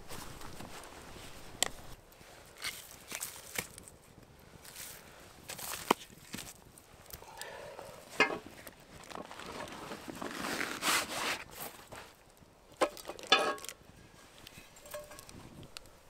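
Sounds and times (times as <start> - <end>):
rustling and scraping: 0.0 - 3.9, 7.4 - 12.2, 12.8 - 16.0.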